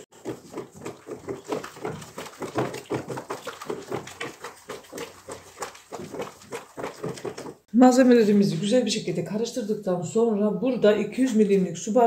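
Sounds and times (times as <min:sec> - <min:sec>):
utensil stirring liquid in plastic bowl: 0:00.0 - 0:07.7.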